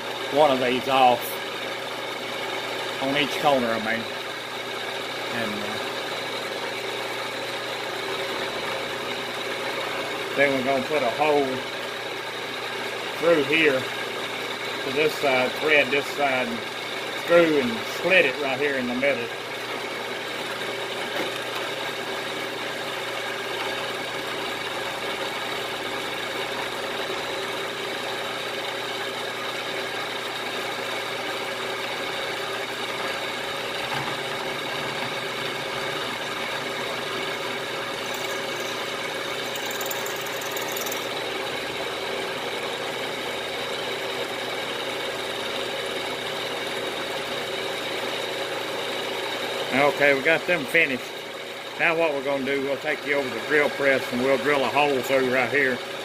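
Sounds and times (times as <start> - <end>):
milling machine cutting metal: 0.0 - 51.8.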